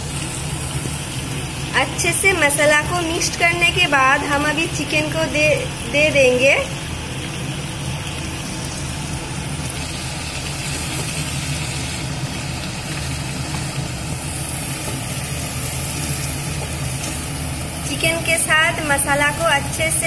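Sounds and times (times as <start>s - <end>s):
chicken sizzling in hot oil: 0.0s - 20.0s
low mechanical hum: 0.0s - 20.0s
wooden spatula turning food: 12.8s - 17.6s.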